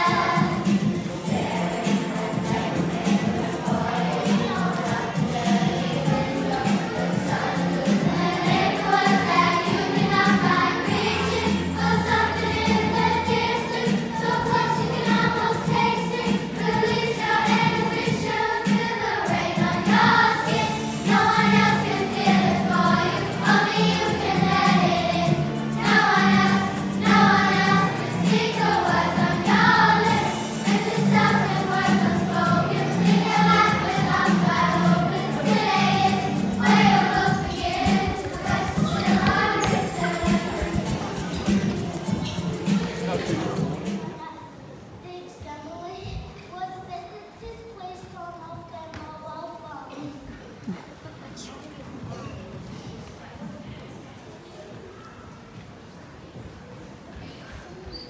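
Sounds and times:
group of voices singing: 0:00.0 - 0:44.1
instrumental accompaniment: 0:00.0 - 0:44.1.

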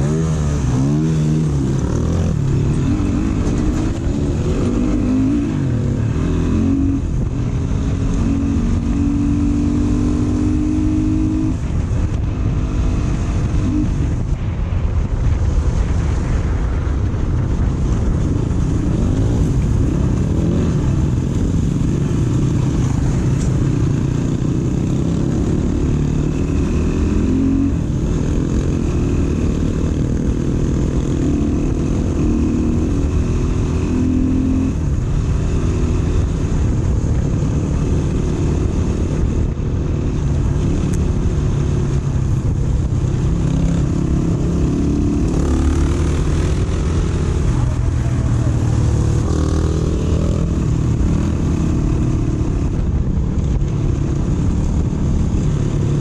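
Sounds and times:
dirt bike engine revving: 0:00.0 - 0:11.8, 0:18.8 - 0:39.3, 0:43.0 - 0:52.8.

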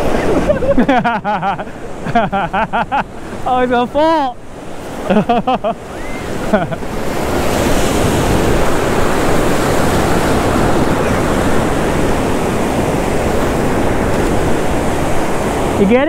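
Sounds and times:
ocean surf breaking: 0:00.0 - 0:16.0.

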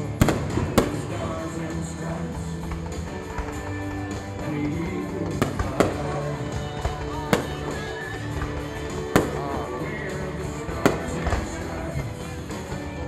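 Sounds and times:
background music: 0:00.0 - 0:13.0
fireworks bangs: 0:00.0 - 0:13.0.

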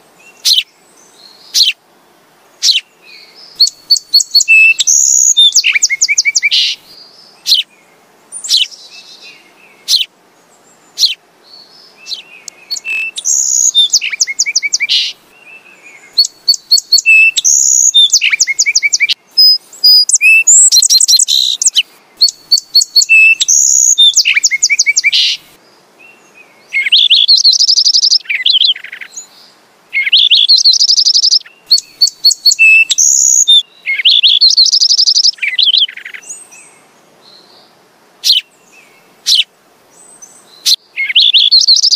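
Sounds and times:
sparrows chirping and singing: 0:00.4 - 0:01.8, 0:02.6 - 0:07.7, 0:08.4 - 0:10.1, 0:10.9 - 0:15.2, 0:16.1 - 0:25.5, 0:26.8 - 0:29.3, 0:30.0 - 0:36.5, 0:40.2 - 0:41.9.

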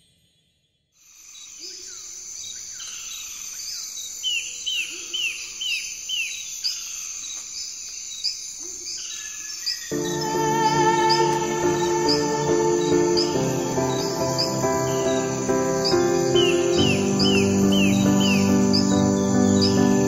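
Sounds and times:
birds calling: 0:08.3 - 0:20.0
rising bird chirps: 0:09.8 - 0:20.0
high insect drone: 0:09.9 - 0:20.0.

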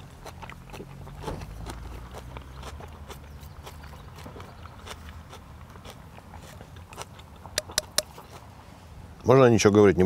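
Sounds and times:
person chewing close up: 0:00.0 - 0:08.6
sharp clicks: 0:07.6 - 0:08.2.

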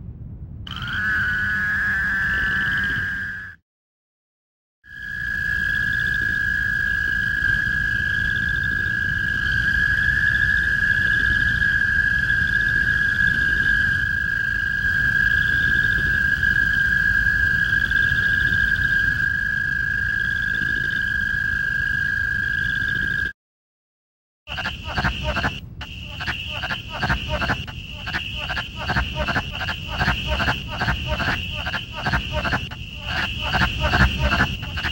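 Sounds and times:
low background rumble: 0:00.0 - 0:00.7, 0:24.5 - 0:34.9
toad trilling: 0:24.5 - 0:34.9.

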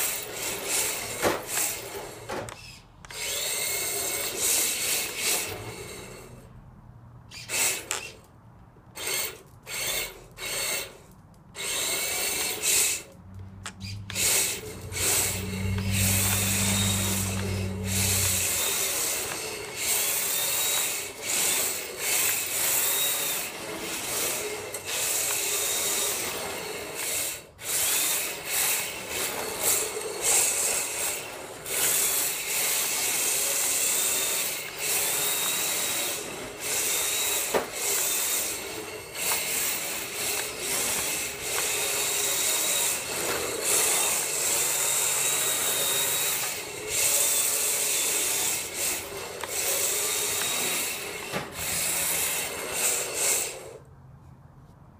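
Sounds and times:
electric motor whining: 0:11.6 - 0:53.8
tyres scrubbing on concrete: 0:11.8 - 0:53.8.

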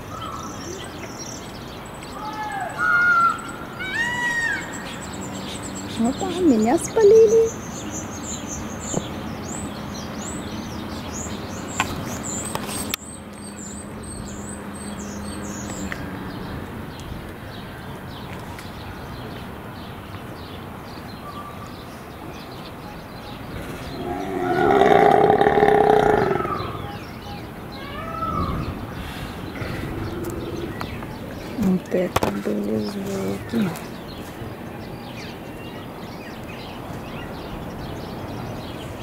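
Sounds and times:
small birds chirping: 0:00.0 - 0:39.0
loud drawn-out animal call: 0:23.6 - 0:27.0.

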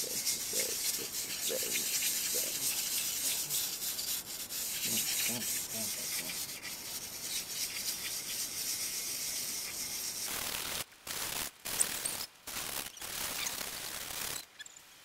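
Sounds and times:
hand rubbing steel: 0:00.0 - 0:10.3
aerosol can hissing: 0:00.0 - 0:10.6.

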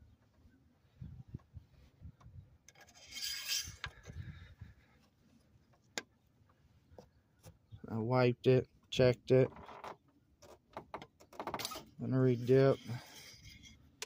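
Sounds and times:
rubbing on microphone: 0:11.7 - 0:13.8.

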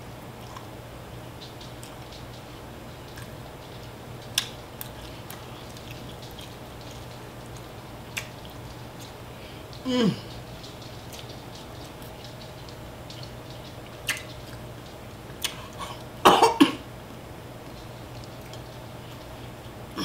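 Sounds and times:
steady low hum: 0:00.0 - 0:20.0
faint eating clicks: 0:00.2 - 0:16.6, 0:17.6 - 0:20.0
person coughing: 0:15.8 - 0:16.8.

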